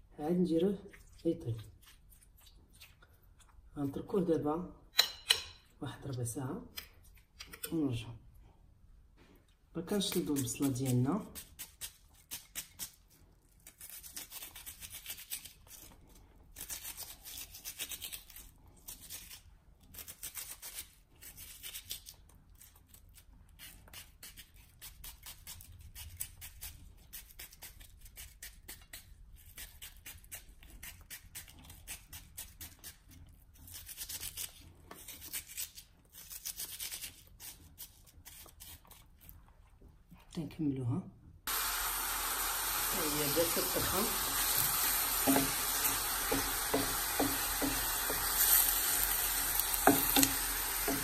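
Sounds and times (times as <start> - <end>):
knife slicing onion: 9.9 - 15.9, 23.5 - 39.0, 41.5 - 51.0.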